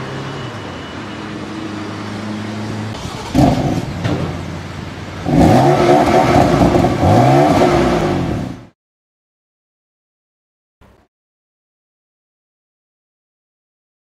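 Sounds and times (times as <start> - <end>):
car engine idling and revving: 0.0 - 8.8.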